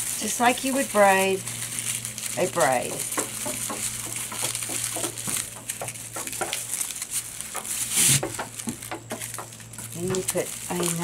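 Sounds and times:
onion skins rustling and crackling: 0:00.0 - 0:11.0
onion tops crunching: 0:00.0 - 0:11.0.

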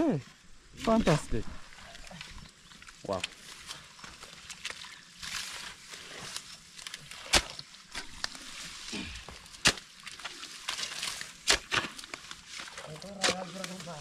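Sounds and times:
hoes chopping into wet soil: 0:05.6 - 0:14.0.

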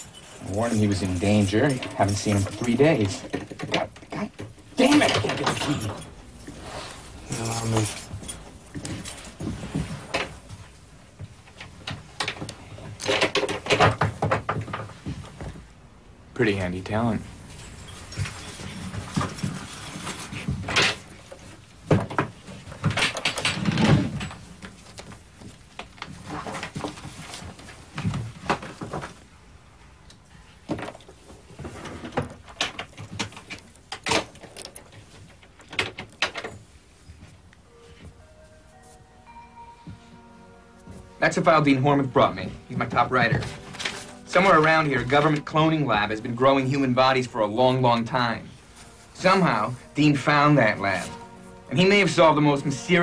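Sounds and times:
lock rattling: 0:32.0 - 0:36.6
papers rustling on a desk: 0:39.9 - 0:47.2, 0:48.4 - 0:53.0.

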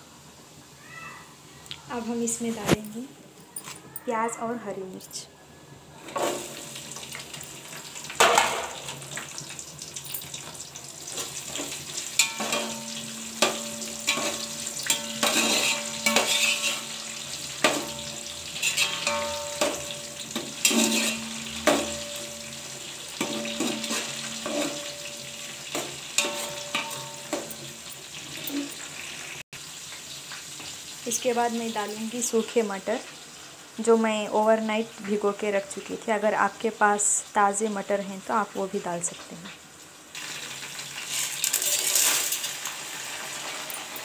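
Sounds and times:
onions sizzling in hot oil: 0:00.0 - 0:03.0, 0:06.0 - 0:44.0
metal spatula scraping pot: 0:10.4 - 0:29.2.

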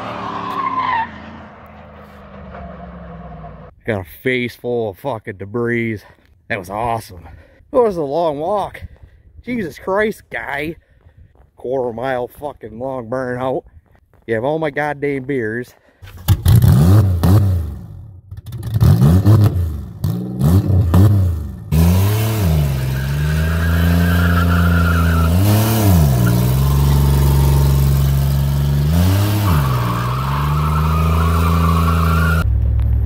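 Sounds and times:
car driving: 0:00.0 - 0:03.7, 0:16.4 - 0:33.0
car engine revving: 0:16.4 - 0:32.4.

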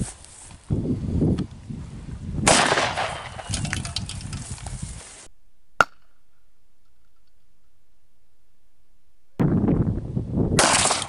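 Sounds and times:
loud gunshot: 0:02.4 - 0:03.5, 0:10.6 - 0:11.0
sharp crack: 0:02.5 - 0:04.6, 0:05.8 - 0:07.4, 0:10.6 - 0:11.0.

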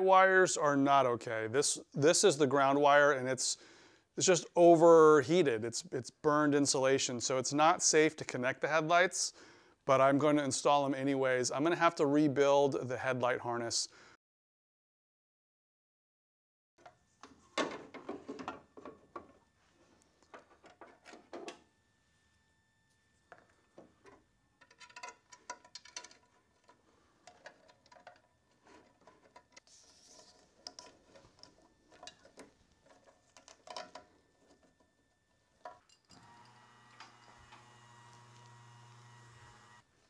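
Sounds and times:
plastic parts clicking: 0:23.8 - 0:34.9.

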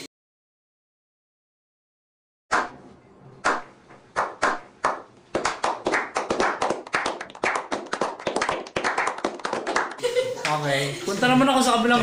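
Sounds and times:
people clapping: 0:03.4 - 0:10.6.

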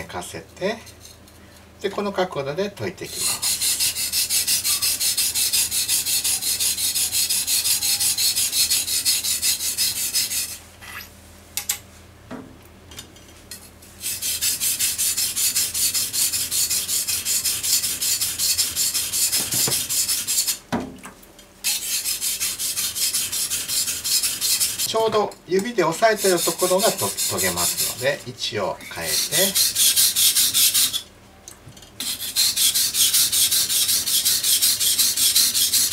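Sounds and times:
knife rasping on whetstone: 0:03.1 - 0:10.6, 0:14.0 - 0:20.6, 0:21.6 - 0:24.9, 0:26.0 - 0:28.2, 0:28.8 - 0:31.0, 0:32.0 - 0:35.9.

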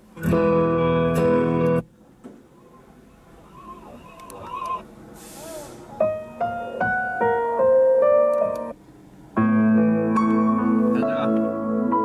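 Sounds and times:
piano melody on car audio: 0:00.0 - 0:01.9, 0:05.9 - 0:12.0.

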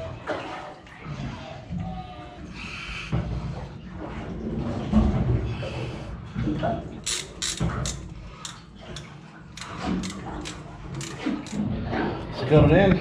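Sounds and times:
metal-on-metal knocks and clinks: 0:07.1 - 0:11.7.

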